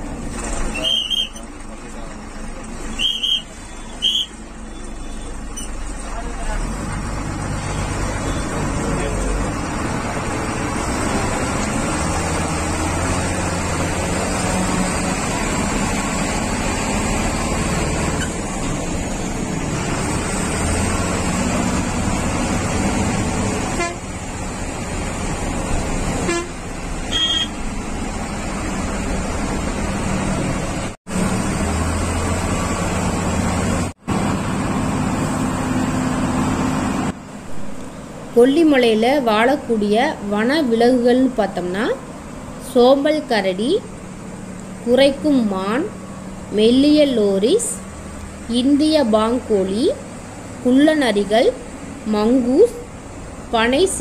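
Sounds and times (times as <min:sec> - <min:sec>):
bus engine and road noise: 0:00.0 - 0:54.0
bus horn: 0:00.7 - 0:01.4, 0:02.9 - 0:04.4, 0:23.6 - 0:24.2, 0:26.2 - 0:27.8.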